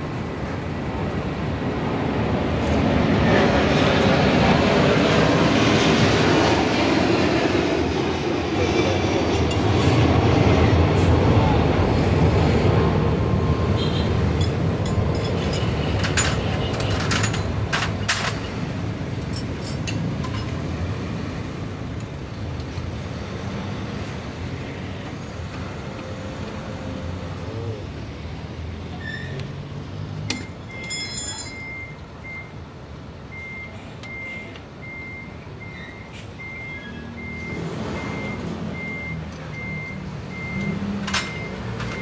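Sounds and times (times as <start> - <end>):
heavy vehicle engine rumble: 0.0 - 42.0
truck reversing beeper: 30.4 - 32.6, 33.3 - 42.0.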